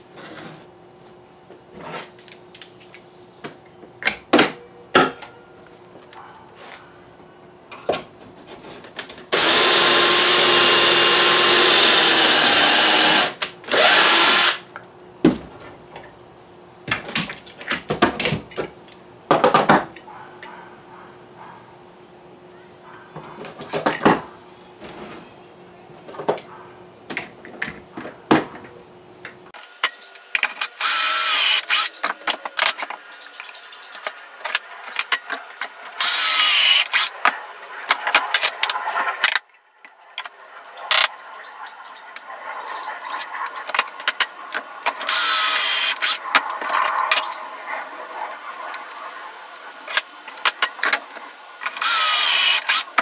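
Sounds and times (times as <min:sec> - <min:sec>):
cordless drill whining: 0:09.3 - 0:14.6, 0:30.7 - 0:31.9, 0:36.0 - 0:37.1, 0:45.0 - 0:46.2, 0:51.7 - 0:53.0.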